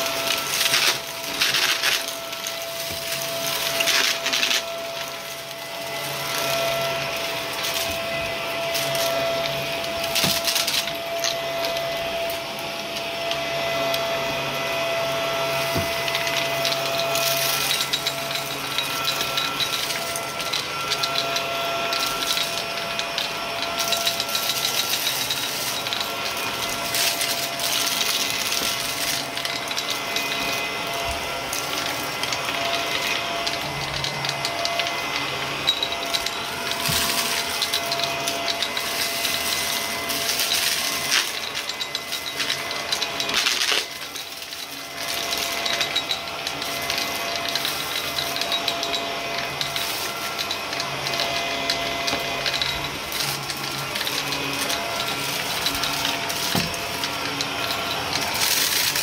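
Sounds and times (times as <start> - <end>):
vacuum cleaner motor whine: 0.0 - 59.0
debris crackling in vacuum: 15.5 - 59.0.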